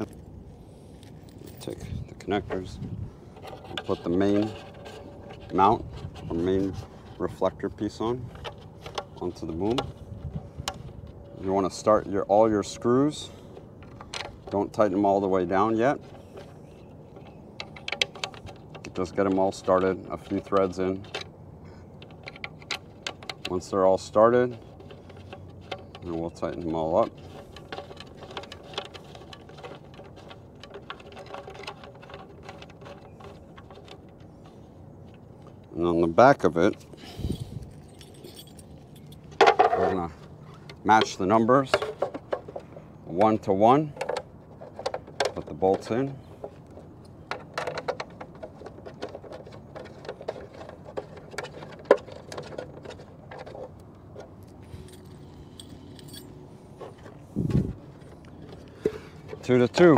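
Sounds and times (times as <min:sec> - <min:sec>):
bolts clicking and tapping: 0:37.7 - 0:59.9.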